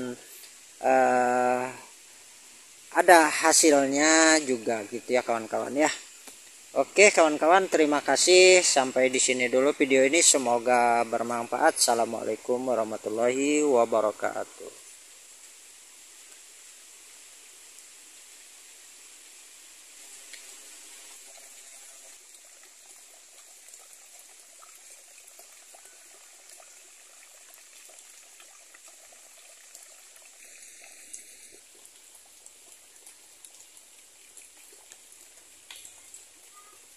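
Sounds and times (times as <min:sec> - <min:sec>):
high hiss: 0:00.0 - 0:22.2
trickle of running water: 0:00.0 - 0:36.9.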